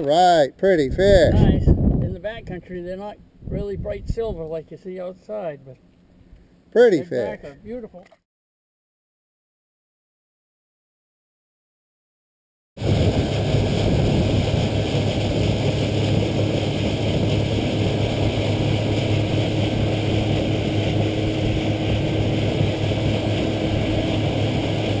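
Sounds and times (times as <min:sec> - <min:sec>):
wind: 0:00.0 - 0:08.2, 0:12.8 - 0:25.0
outboard motor drone: 0:12.8 - 0:25.0
rushing water: 0:12.8 - 0:25.0.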